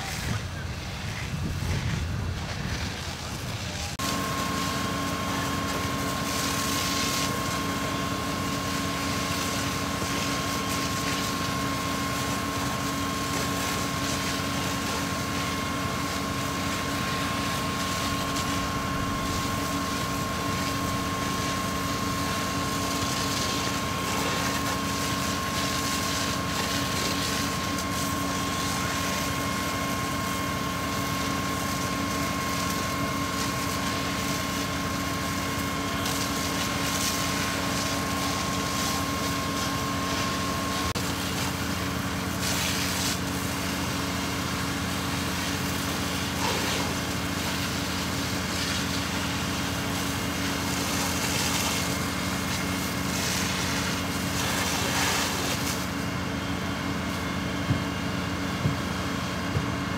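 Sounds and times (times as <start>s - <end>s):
low wind-like rumble: 0.0s - 3.9s
hose water spray hissing: 0.0s - 56.4s
fire engine pump humming and whining: 0.0s - 59.9s.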